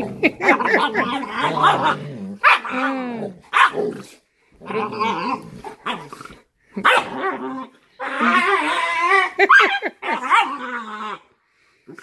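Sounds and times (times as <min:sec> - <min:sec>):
dogs growling and yipping: 0:00.0 - 0:12.0
dog barking: 0:02.4 - 0:02.7, 0:03.5 - 0:03.8, 0:06.8 - 0:07.2.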